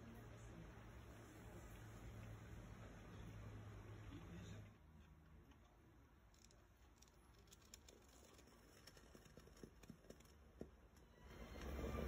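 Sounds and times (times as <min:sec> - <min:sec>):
faint irregular ticks: 0:06.2 - 0:11.0.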